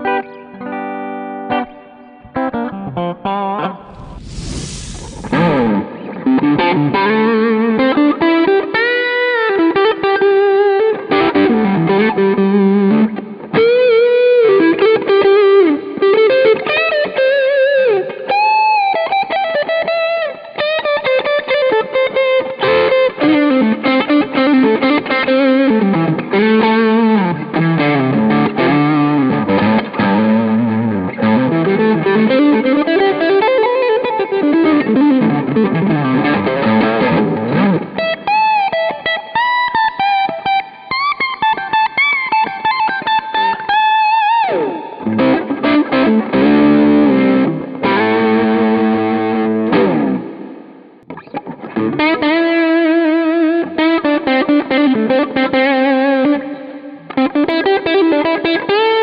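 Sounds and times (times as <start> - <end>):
overdriven electric guitar lead: 43.3 - 59.0.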